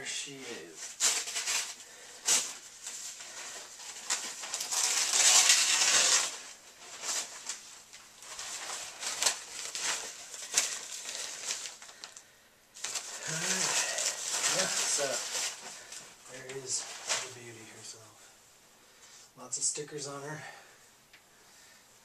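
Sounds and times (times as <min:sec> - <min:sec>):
packaging crinkling and rustling: 0:00.6 - 0:17.6.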